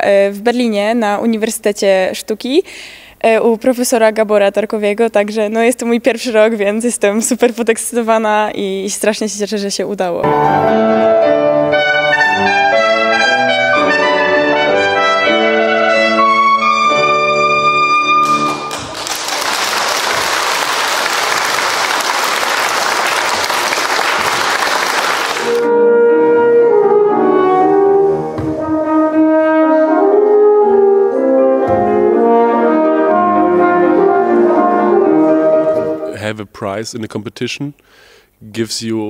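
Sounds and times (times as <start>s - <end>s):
piano accompaniment: 10.2s - 36.2s
trumpet note: 10.3s - 18.9s, 25.2s - 36.2s
french horn melody: 10.5s - 18.7s, 25.2s - 36.2s
audience applause: 18.2s - 25.7s.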